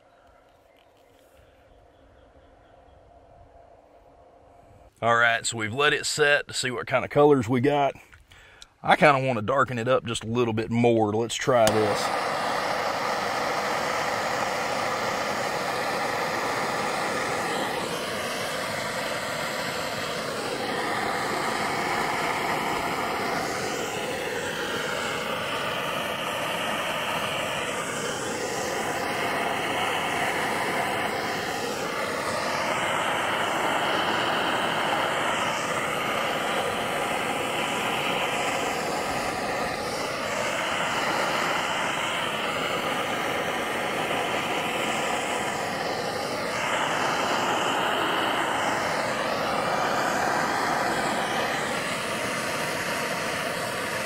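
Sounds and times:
gas torch hissing: 0:11.4 - 0:54.0.

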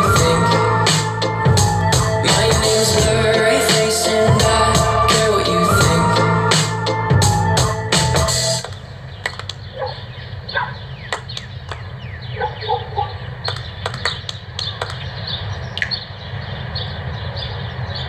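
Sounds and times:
steady low rumble: 0:00.0 - 0:09.6
birds chirping: 0:00.0 - 0:18.0.

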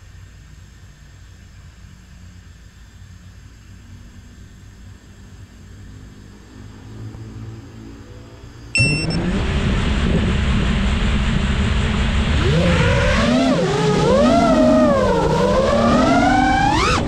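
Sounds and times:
drone motors whining: 0:08.8 - 0:17.0.

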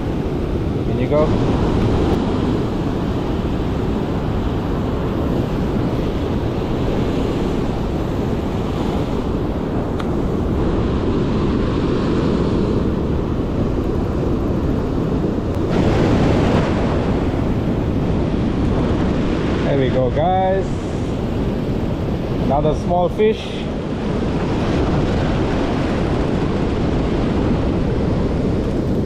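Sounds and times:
surf breaking over rocks: 0:00.0 - 0:29.0
wind buffeting microphone: 0:00.0 - 0:29.0.

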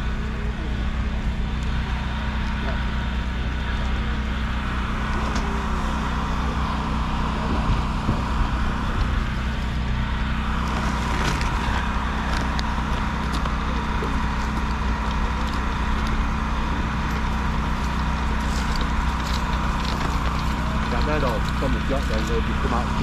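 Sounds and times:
low motor hum: 0:00.0 - 0:23.0
plastic bag rustling: 0:10.6 - 0:16.3.

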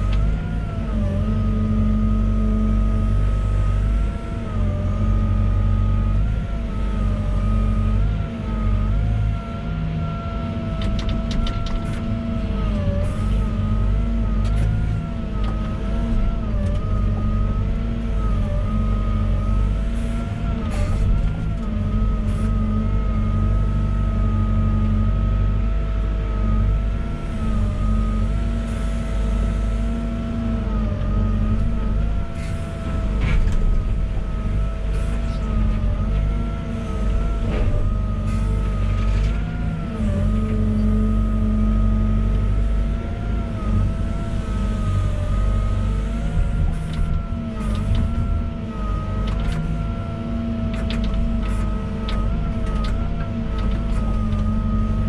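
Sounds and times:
excavator engine hum: 0:00.0 - 0:55.0.

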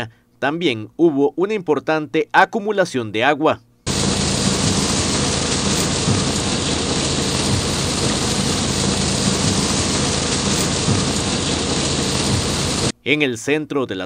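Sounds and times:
heavy rain on a car roof: 0:03.9 - 0:12.9.

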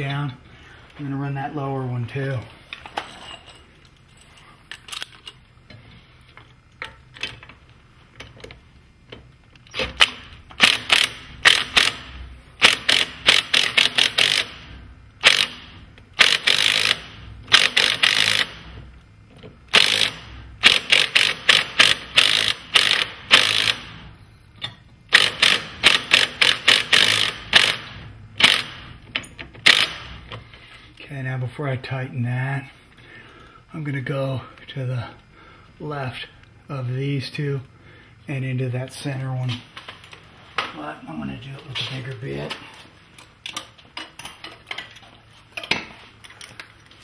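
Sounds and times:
ratchet wrench clicking: 0:09.9 - 0:14.6, 0:15.2 - 0:18.7, 0:19.7 - 0:23.9, 0:25.1 - 0:28.8, 0:29.6 - 0:30.1.

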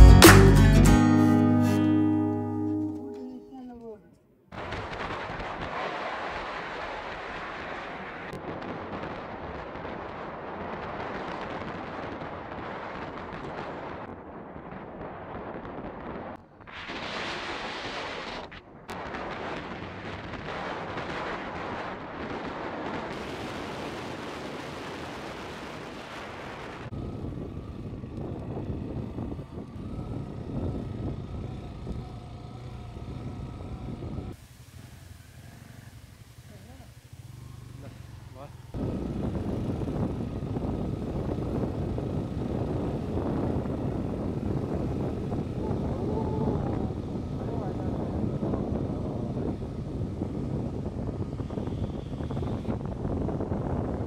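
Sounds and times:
wind buffeting microphone: 0:04.6 - 0:54.0
road noise: 0:21.3 - 0:54.0
motorcycle engine running: 0:26.9 - 0:54.0.

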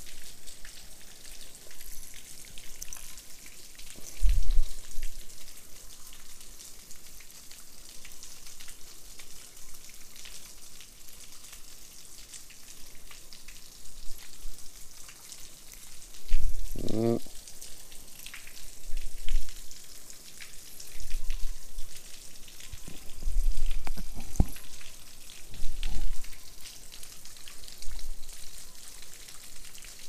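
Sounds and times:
water rushing over spillway: 0:14.7 - 0:30.0.

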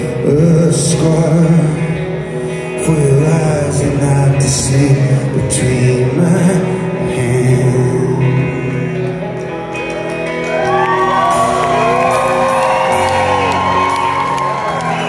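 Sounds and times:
crowd whooping and shouting: 0:09.9 - 0:15.0.

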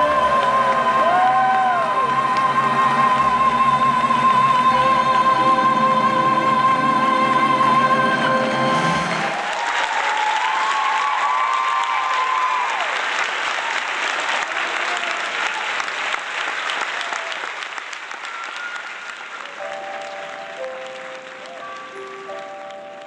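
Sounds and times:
audience applauding: 0:00.0 - 0:04.5, 0:08.7 - 0:23.0
music: 0:00.0 - 0:09.5, 0:18.2 - 0:23.0.

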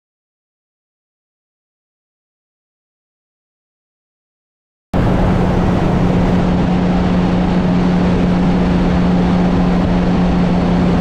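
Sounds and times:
motorcycle engine hum: 0:05.0 - 0:11.0
wind and road noise: 0:05.0 - 0:11.0.

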